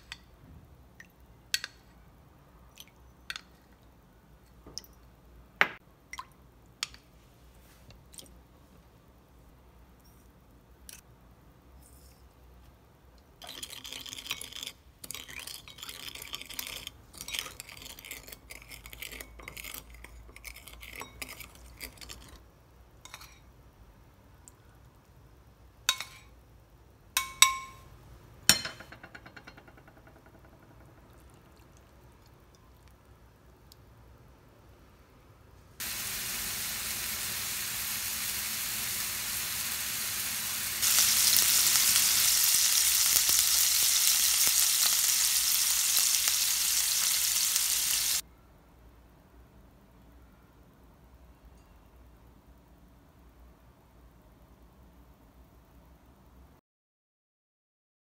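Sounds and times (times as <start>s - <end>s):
spoon scraping glass bowl: 13.6s - 22.4s
meat sizzling in pan: 35.8s - 48.2s.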